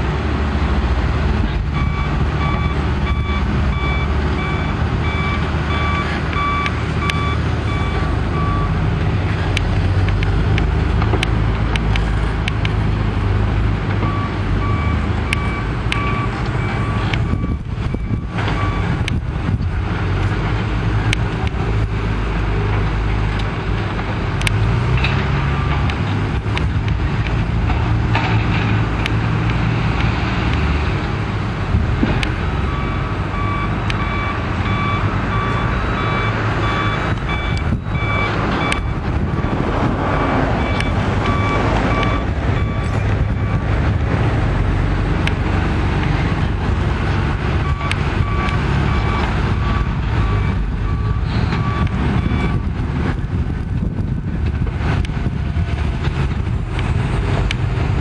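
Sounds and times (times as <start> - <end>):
diesel engines under load: 0.0 - 58.0
reversing alarm beeping: 1.8 - 8.8, 14.0 - 19.0, 32.6 - 39.6, 40.2 - 43.7, 47.6 - 52.7.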